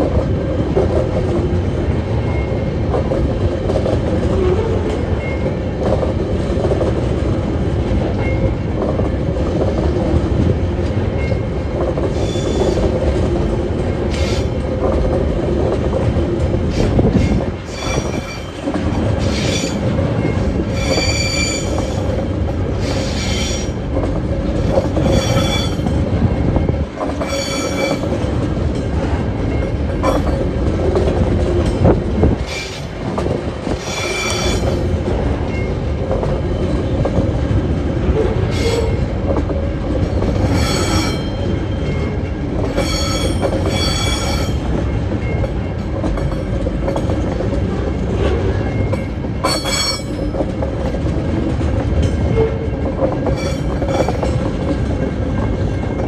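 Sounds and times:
freight train rumbling past: 0.0s - 56.0s
train wheels squealing: 12.1s - 12.8s, 14.1s - 14.5s, 16.7s - 18.6s, 19.2s - 22.1s, 22.8s - 23.8s, 25.0s - 25.9s, 27.2s - 28.1s, 33.8s - 34.9s, 38.5s - 39.0s, 40.4s - 42.1s, 42.7s - 44.6s, 48.8s - 50.3s, 53.3s - 54.3s.

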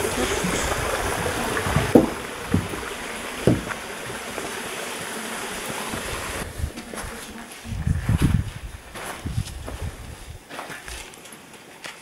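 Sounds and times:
flowing water rushing: 0.0s - 6.6s.

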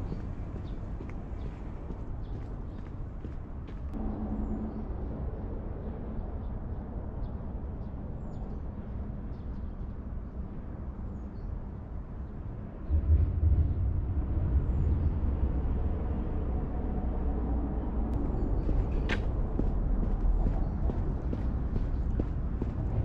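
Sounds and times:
steady low rumble: 12.3s - 23.0s.

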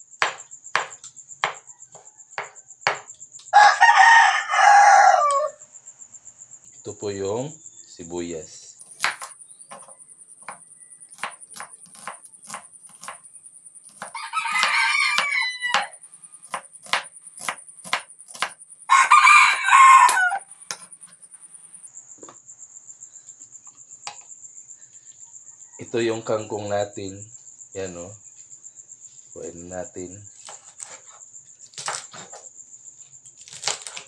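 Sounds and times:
rooster crowing: 1.5s - 5.6s, 14.0s - 16.1s, 18.9s - 20.6s, 25.2s - 26.2s.

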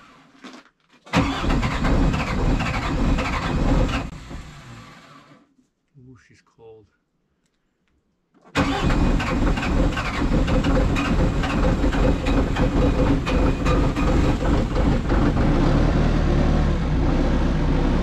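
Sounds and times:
engine knocking clatter: 8.9s - 15.7s
skid steer engine idling: 10.1s - 15.6s.

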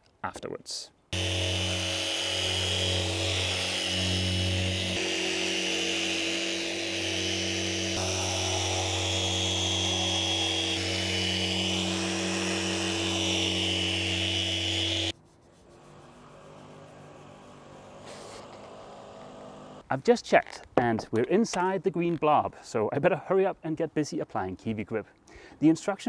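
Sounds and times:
power sander running: 1.2s - 15.1s, 15.9s - 19.8s.

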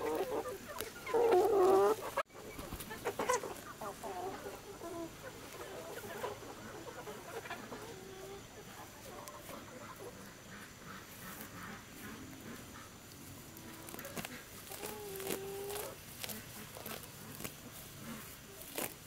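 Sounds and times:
chickens clucking: 0.0s - 19.0s
leaves rustling as picked: 11.1s - 19.0s.

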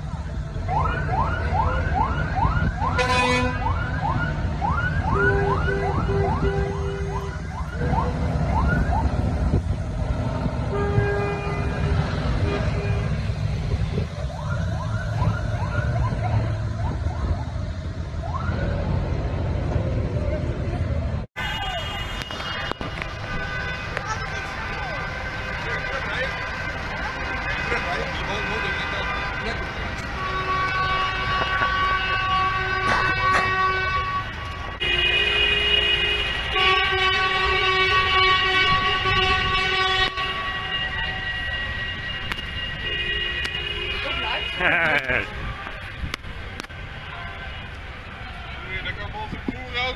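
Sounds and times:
horn toot: 2.9s - 3.7s, 10.6s - 13.3s, 27.5s - 45.5s.

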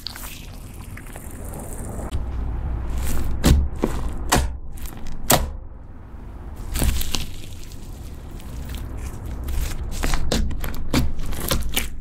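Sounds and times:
slime squelching: 0.0s - 2.1s, 6.6s - 12.0s.

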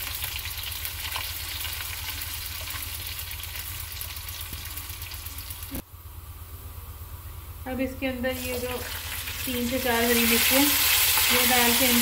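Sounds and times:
food sizzling in hot oil: 0.0s - 5.8s, 8.4s - 12.0s.

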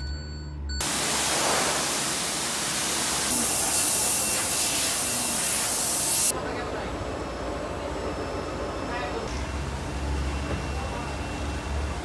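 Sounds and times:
car wash rushing hiss: 0.8s - 6.3s.

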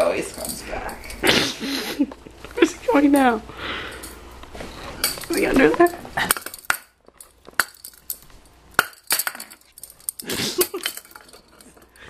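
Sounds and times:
shot glass clinking and knocking: 6.2s - 11.4s.

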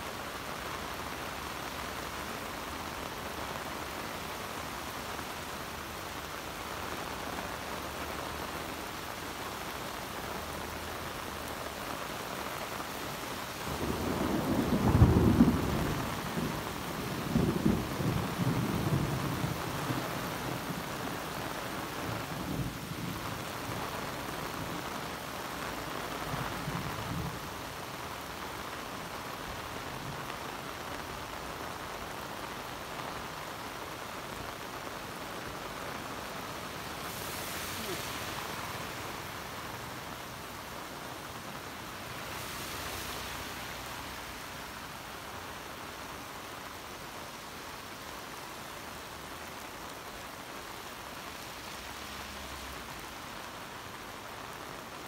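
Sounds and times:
heavy rain on road: 0.0s - 55.0s
thunder rumbling: 13.7s - 21.0s.

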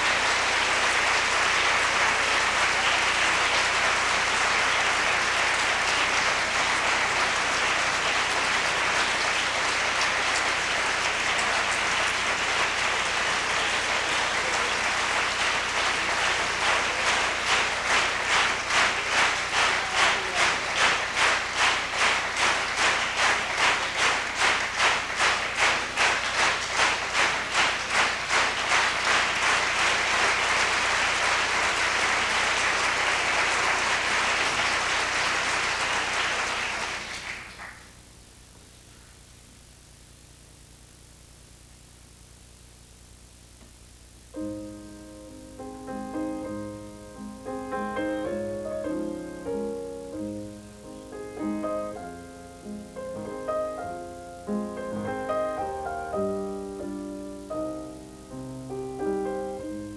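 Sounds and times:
rhythmic clapping in unison: 0.0s - 37.9s
audience applauding: 0.0s - 38.0s, 50.1s - 58.0s.

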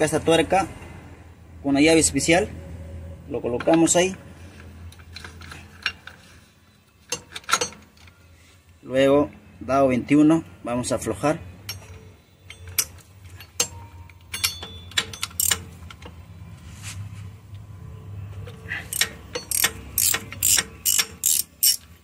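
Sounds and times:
ratchet wrench clicking: 13.6s - 16.0s, 18.9s - 22.0s.

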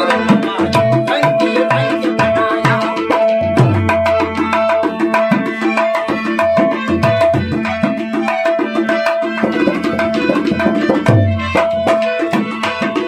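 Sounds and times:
hand drum rhythm: 0.0s - 13.0s
harmonium melody over drone: 0.0s - 13.0s.

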